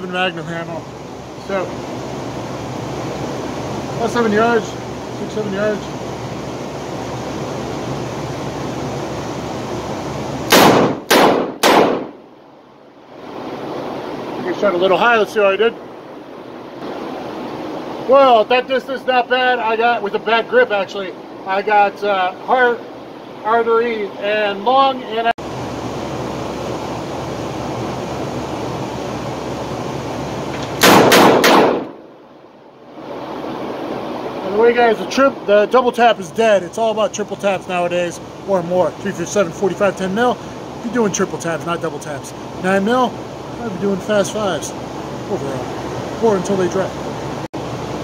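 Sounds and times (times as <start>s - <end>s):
steady background hiss: 0.0s - 48.0s
revolver shots with echo: 10.5s - 12.2s, 30.8s - 32.0s.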